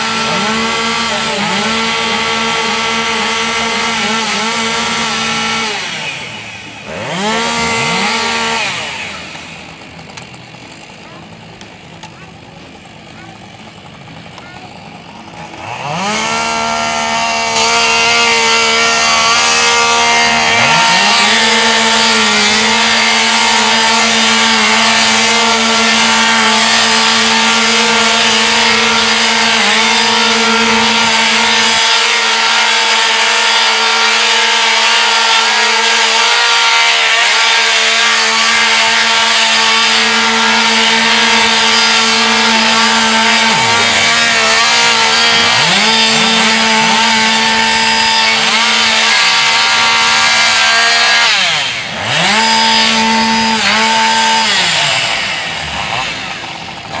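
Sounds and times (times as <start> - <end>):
chainsaws cutting: 0.0 - 57.0.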